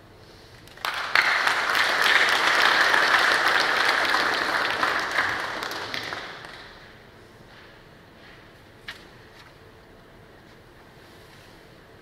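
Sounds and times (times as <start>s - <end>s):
audience applauding: 0.7s - 6.9s.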